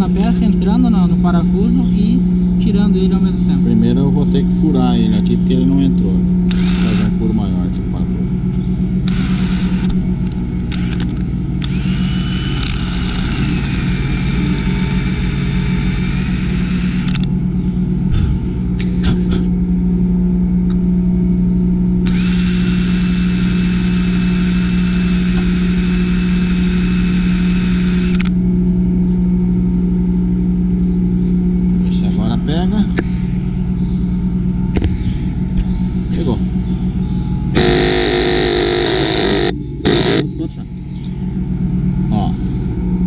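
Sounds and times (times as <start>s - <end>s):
steady low hum: 0.0s - 43.0s
drill boring into steel: 6.5s - 7.2s, 9.0s - 10.0s, 10.7s - 17.3s, 22.0s - 28.3s, 37.6s - 40.3s.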